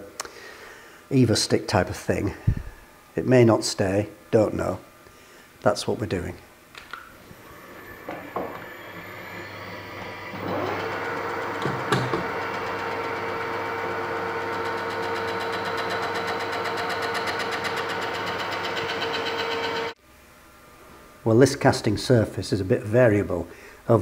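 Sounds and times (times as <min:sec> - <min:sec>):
metal lathe running: 0:07.4 - 0:20.0.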